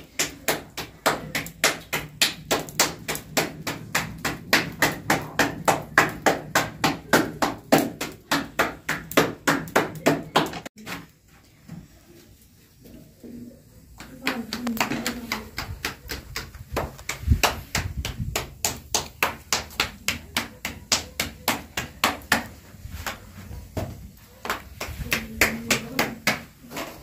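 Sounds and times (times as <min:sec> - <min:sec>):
dough slapped between palms: 0:00.0 - 0:10.7, 0:13.9 - 0:26.7.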